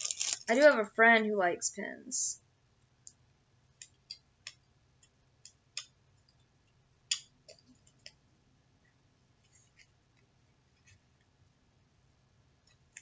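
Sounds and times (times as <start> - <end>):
plastic packaging clicking and crinkling: 0.0 - 0.8.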